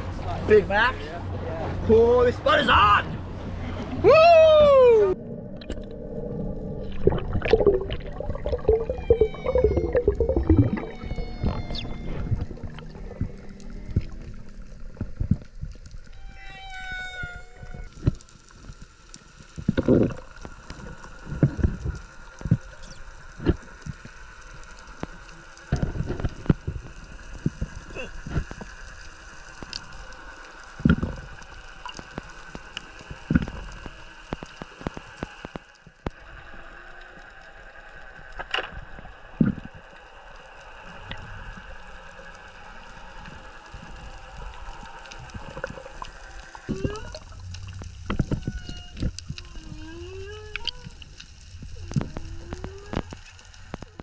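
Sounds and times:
faint hum: 0:03.0 - 0:54.0.

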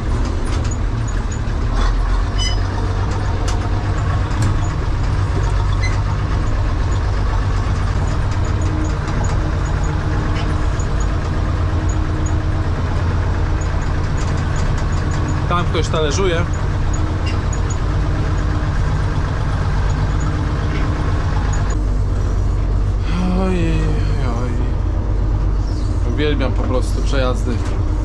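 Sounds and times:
knocks and rattles: 0:00.0 - 0:21.8
diesel engine droning: 0:00.0 - 0:28.0.

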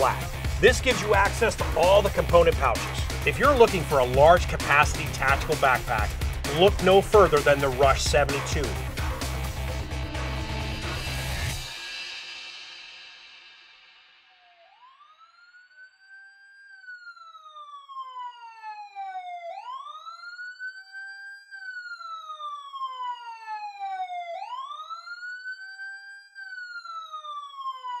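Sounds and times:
siren wailing: 0:00.0 - 0:12.0, 0:14.3 - 0:28.0.

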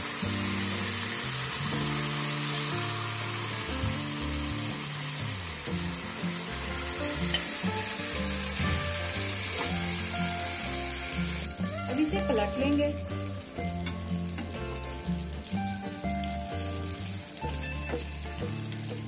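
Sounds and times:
batter sizzling in hot oil: 0:00.0 - 0:19.0
music with slow held notes: 0:00.0 - 0:19.0.

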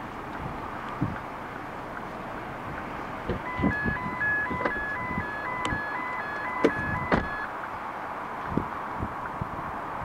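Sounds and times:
electronic two-tone alarm: 0:03.4 - 0:07.5.

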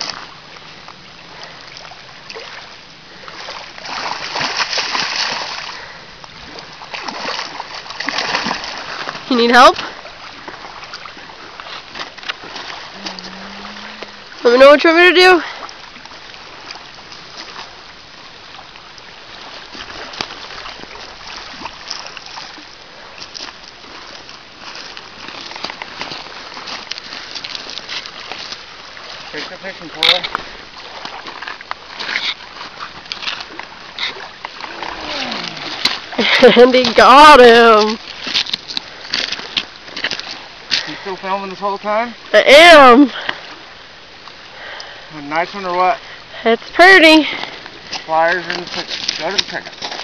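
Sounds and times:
lapping water: 0:00.0 - 0:41.5, 0:42.2 - 0:50.0
fish thrashing and splashing: 0:01.3 - 0:41.0.

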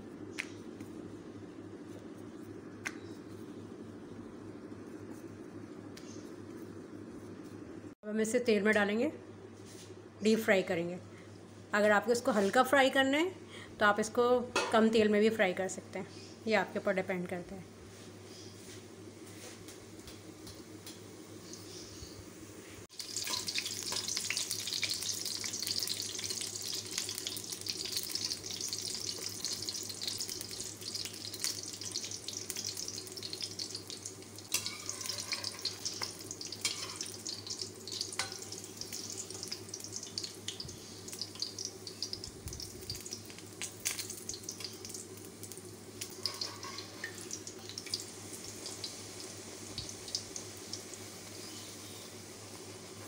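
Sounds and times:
oil sizzling and crackling: 0:19.8 - 0:53.0.

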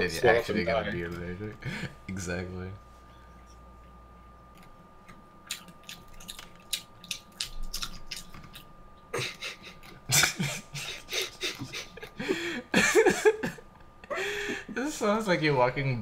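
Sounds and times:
wet mouth clicks and smacks: 0:04.6 - 0:08.7.

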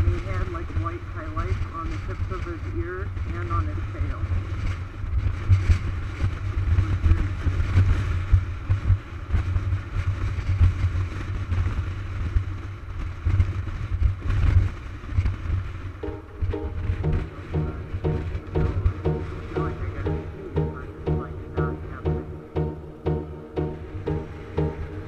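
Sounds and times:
music: 0:16.0 - 0:25.0.

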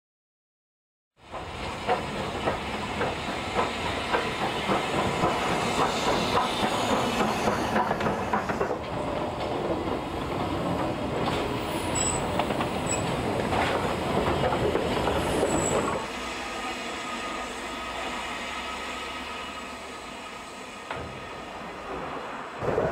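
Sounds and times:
steam locomotive wheels clicking: 0:01.3 - 0:16.0
high-pitched wheel squeals: 0:11.8 - 0:13.1.

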